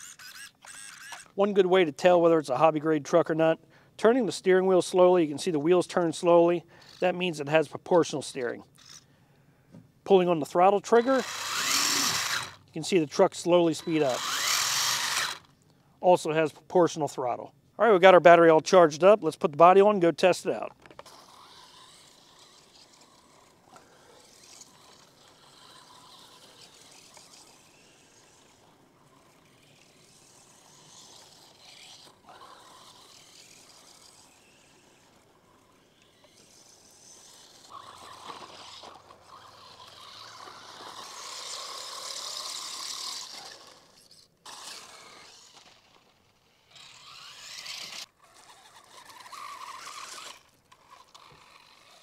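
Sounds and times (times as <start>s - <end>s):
tyres on dry grass: 10.4s - 15.6s, 19.5s - 52.0s
electric motor whine: 10.9s - 12.8s, 13.7s - 15.5s, 20.8s - 52.0s.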